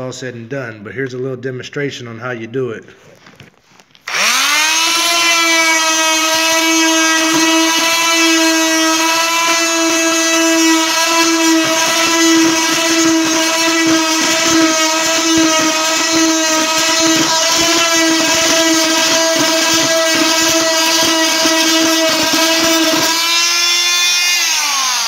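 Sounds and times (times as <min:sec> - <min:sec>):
multi-tool buzzing: 0:04.0 - 0:25.0.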